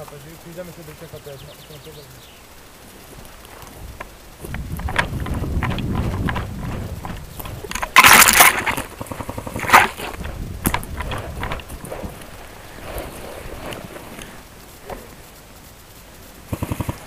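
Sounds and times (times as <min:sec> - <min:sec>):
rustling burst: 0:02.4 - 0:17.0
footsteps on forest floor: 0:02.9 - 0:15.2.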